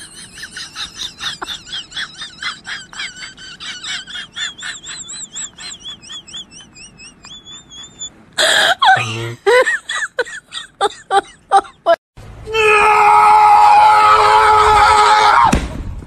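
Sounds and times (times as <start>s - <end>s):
chicken calling: 0.0s - 8.2s.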